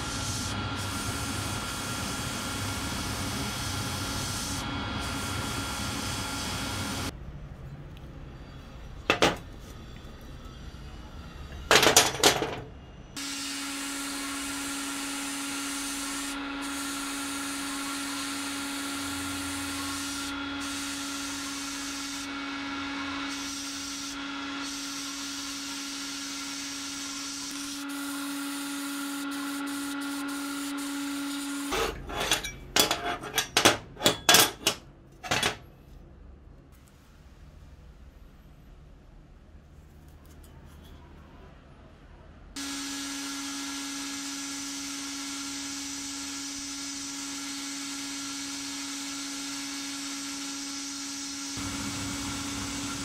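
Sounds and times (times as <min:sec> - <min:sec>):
sandblast gun hissing: 0:00.0 - 0:07.1, 0:13.2 - 0:22.3, 0:45.4 - 0:53.0.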